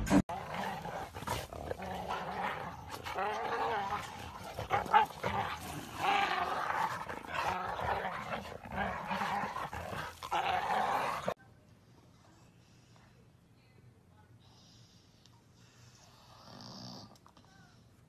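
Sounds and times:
dogs growling in play: 0.2s - 11.4s.

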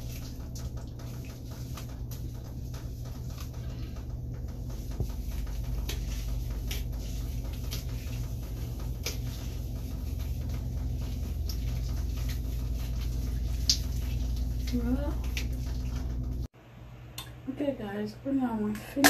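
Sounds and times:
water drips: 0.0s - 16.4s
shower water running: 0.0s - 16.5s
hand pats on hair: 4.7s - 15.9s.

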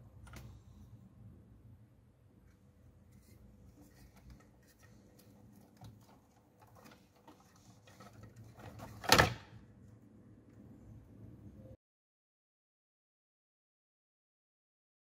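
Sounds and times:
plastic connectors and cables rustling: 3.1s - 9.4s.

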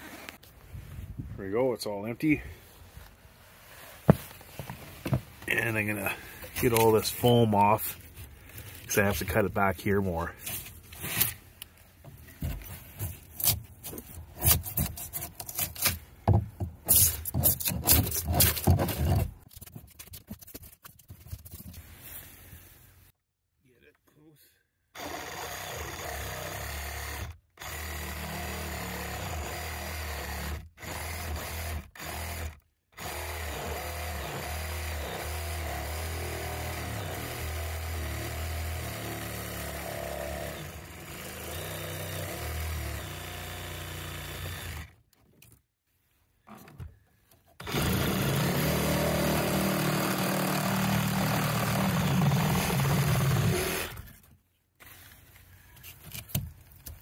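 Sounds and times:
reciprocating saw cutting plastic pipe: 13.3s - 16.0s, 16.6s - 20.6s, 47.6s - 55.0s.

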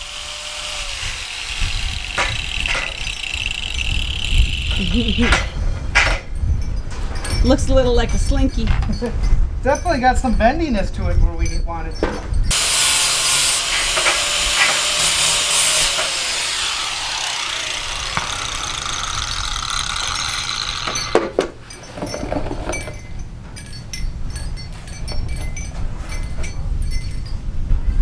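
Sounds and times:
angle grinder cutting metal: 0.0s - 5.6s, 12.5s - 21.3s
metal clinks: 20.1s - 27.7s.

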